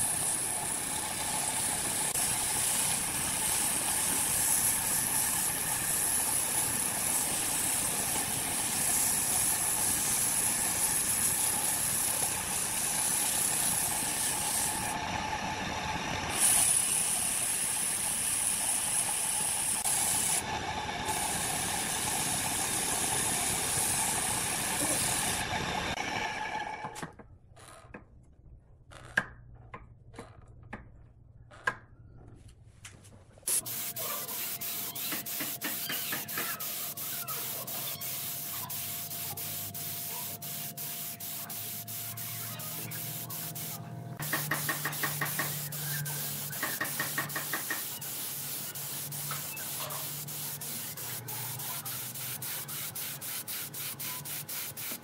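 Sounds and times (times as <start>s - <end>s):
sandpaper rubbing on spinning wood: 0.0s - 15.0s, 16.3s - 26.0s, 33.5s - 55.0s.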